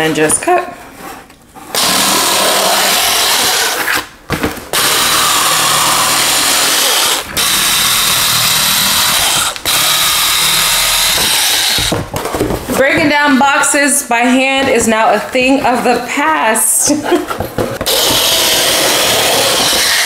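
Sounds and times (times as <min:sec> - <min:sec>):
electric cutter slicing cardboard: 0:01.7 - 0:04.1, 0:04.7 - 0:12.0, 0:17.8 - 0:20.0.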